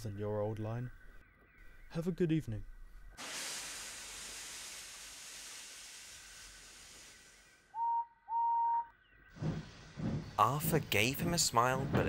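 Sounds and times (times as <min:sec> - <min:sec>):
steam hissing: 0:03.2 - 0:07.9
steam whistle toots: 0:07.7 - 0:08.9.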